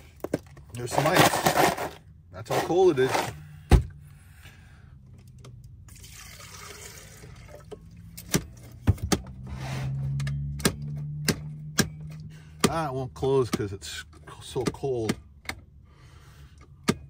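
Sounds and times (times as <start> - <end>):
water pouring from container: 5.9 - 7.8.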